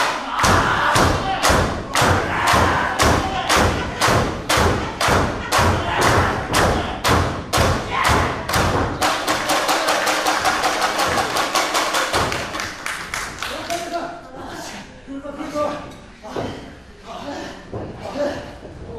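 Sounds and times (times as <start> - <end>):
audience clapping in unison: 9.0 - 14.0.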